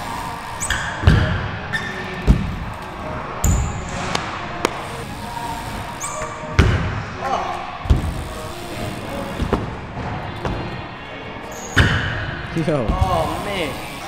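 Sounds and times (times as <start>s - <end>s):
bike squeaks: 0.0s - 14.0s
bike wheels thudding on ramp: 0.7s - 1.6s, 2.2s - 2.8s, 7.8s - 8.4s, 9.2s - 10.8s, 12.8s - 13.5s.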